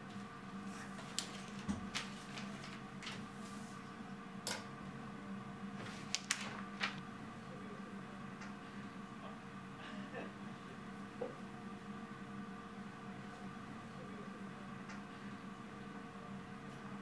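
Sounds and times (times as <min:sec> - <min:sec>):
paper rustling: 0:00.8 - 0:03.7, 0:05.8 - 0:07.0.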